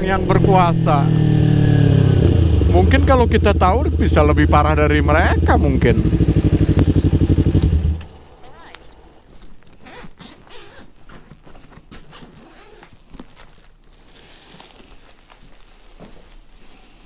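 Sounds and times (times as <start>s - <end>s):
bag and foil packaging rustling: 8.5s - 17.0s
zipper pulled open: 9.6s - 14.6s.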